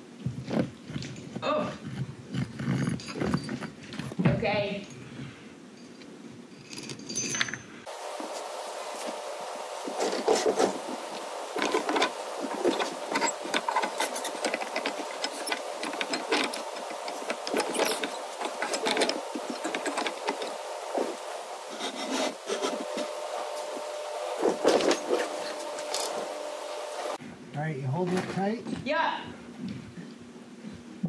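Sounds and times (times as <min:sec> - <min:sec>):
wood and metal hardware scraping: 0:00.5 - 0:04.6, 0:05.9 - 0:27.2
steady hum: 0:07.9 - 0:27.6.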